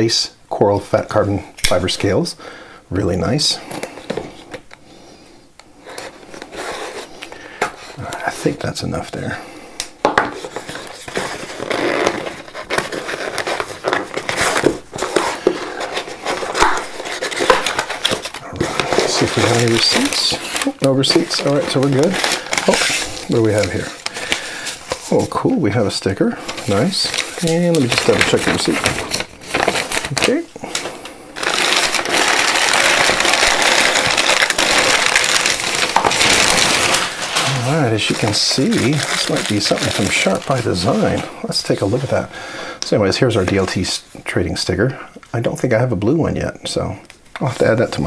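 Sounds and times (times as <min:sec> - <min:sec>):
packing tape and cardboard crackling: 0:10.4 - 0:42.2.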